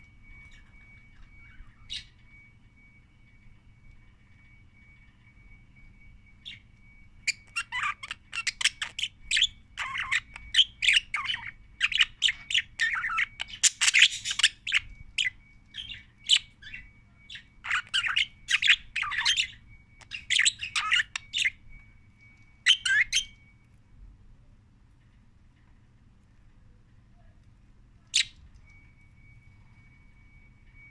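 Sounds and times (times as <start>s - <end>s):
budgerigar chirping and warbling: 7.3s - 21.6s, 22.7s - 23.4s.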